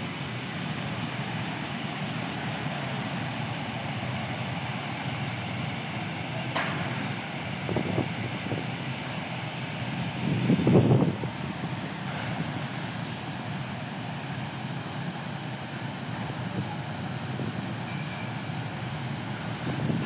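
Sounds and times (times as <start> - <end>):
city traffic hum: 0.0 - 20.0.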